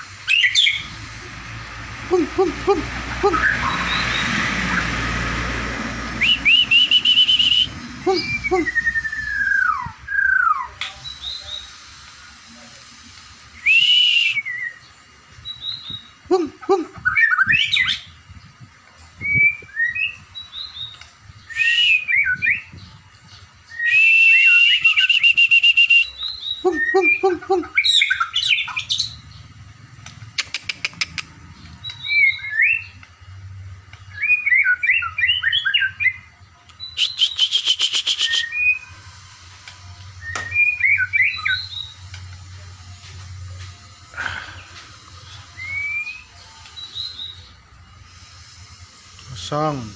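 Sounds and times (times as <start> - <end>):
harsh rattling bird trills: 0.0 - 1.2, 23.7 - 33.0, 36.8 - 42.8
bird singing whistled phrases: 0.3 - 1.0, 3.3 - 4.4, 6.2 - 11.8, 13.5 - 16.1, 17.0 - 18.2, 19.2 - 22.9, 23.7 - 29.2, 31.8 - 33.0, 34.0 - 39.0, 40.2 - 42.0, 45.2 - 47.6.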